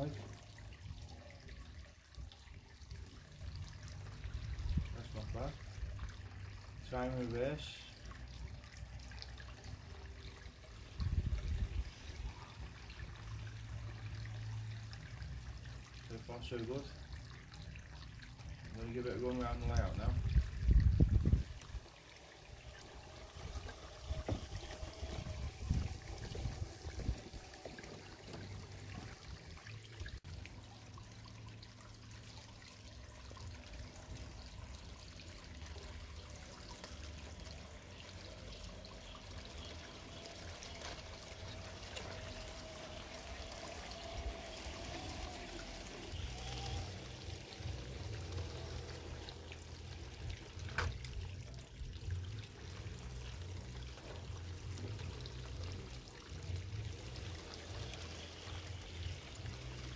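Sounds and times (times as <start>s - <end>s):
water feature trickling and splashing: 0.0s - 59.9s
faint wavering whine: 21.8s - 33.5s.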